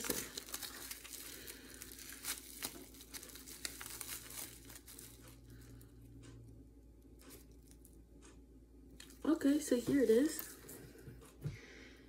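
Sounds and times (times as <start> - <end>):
plastic wrapping crinkling: 0.0 - 5.8.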